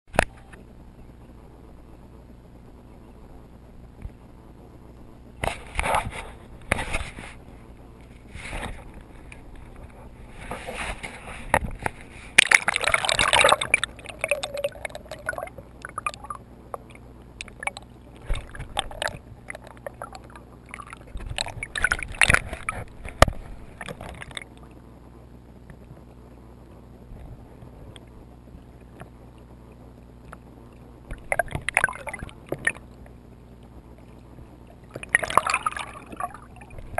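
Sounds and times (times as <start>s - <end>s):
steady low hum: 0.1s - 36.9s
water splashing and gurgling: 8.2s - 24.8s, 27.1s - 36.9s.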